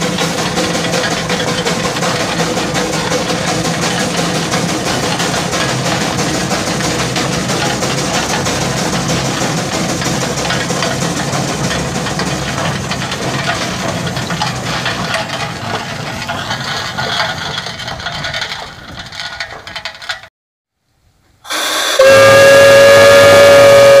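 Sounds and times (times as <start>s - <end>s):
loud steam whistle: 21.5s - 24.0s.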